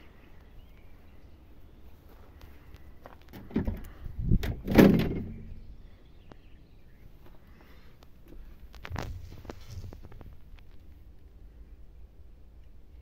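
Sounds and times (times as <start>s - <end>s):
knocks and rattles in truck cab: 3.3s - 5.5s.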